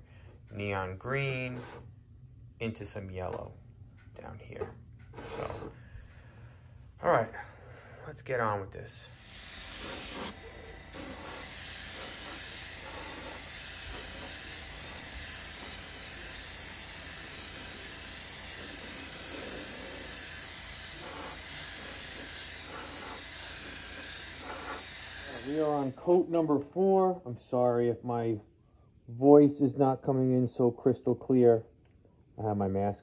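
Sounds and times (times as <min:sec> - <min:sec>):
airbrush spraying hiss: 0:09.1 - 0:26.1.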